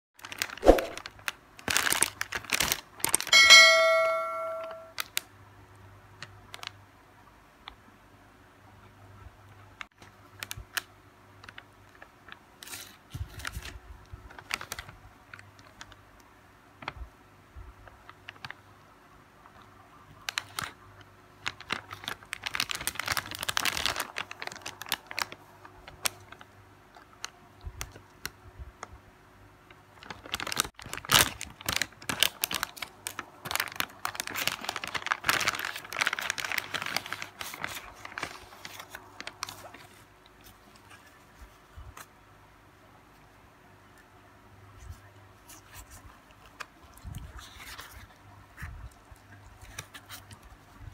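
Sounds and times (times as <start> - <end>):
plastic wrapper crinkling: 0.2 - 5.2, 10.0 - 16.0, 17.8 - 18.6, 19.5 - 28.3, 29.7 - 42.1, 44.9 - 48.2, 48.8 - 50.8.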